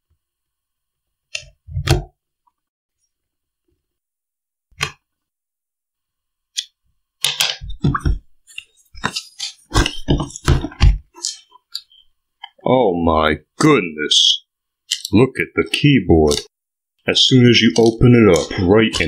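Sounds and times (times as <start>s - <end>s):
knocks and scrapes on cardboard: 9.0s - 11.4s.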